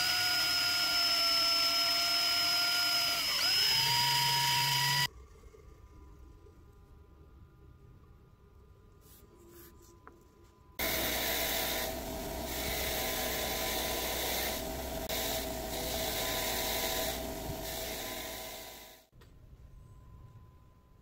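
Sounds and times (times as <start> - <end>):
bench grinder grinding steel: 10.8 - 19.0.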